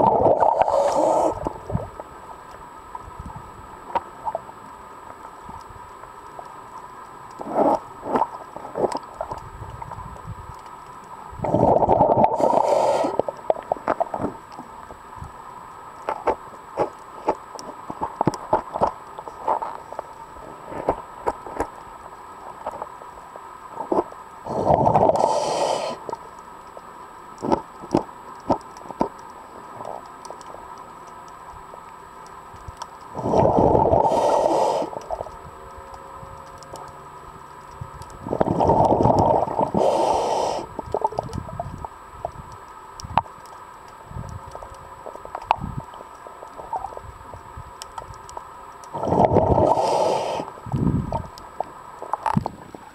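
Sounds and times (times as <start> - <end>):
exhaled bubbles rushing underwater: 0.0 - 2.0, 11.4 - 14.2, 24.5 - 25.4, 33.2 - 35.3, 38.2 - 41.7, 48.9 - 50.1
regulator hiss: 0.4 - 1.5, 12.3 - 13.3, 24.5 - 26.2, 34.0 - 35.2, 39.6 - 40.8, 49.6 - 50.6
sharp underwater clicks: 15.9 - 20.2, 24.7 - 52.6.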